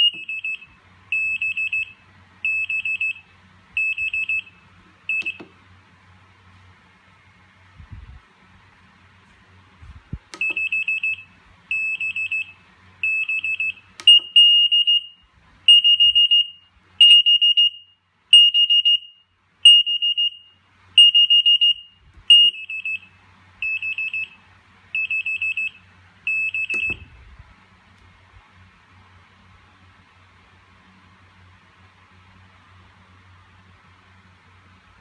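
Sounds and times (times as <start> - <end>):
kitchen timer beeping: 10.4 - 15.0.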